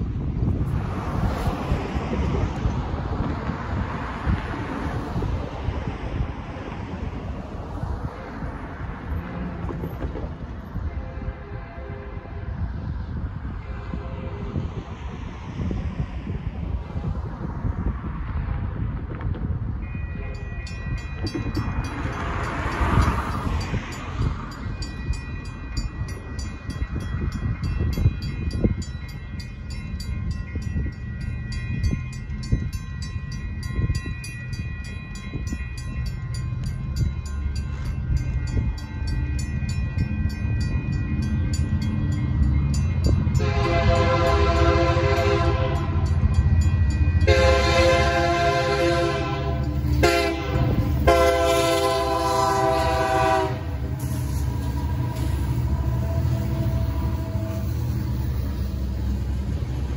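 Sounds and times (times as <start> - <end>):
diesel locomotives rumbling: 0.0 - 59.9
locomotive horn blasts: 10.8 - 12.6, 43.3 - 46.0, 47.2 - 57.8
railroad crossing bells ringing: 19.5 - 59.9.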